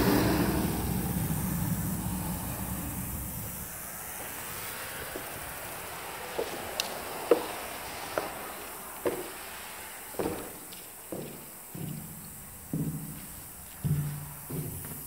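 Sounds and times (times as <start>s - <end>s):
steady hiss: 0.0s - 15.0s
footsteps on a gritty floor: 4.2s - 15.0s.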